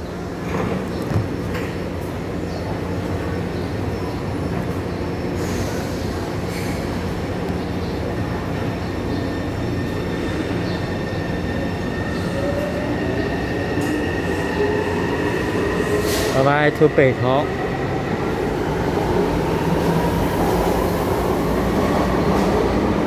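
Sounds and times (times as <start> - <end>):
train humming: 1.3 - 23.0.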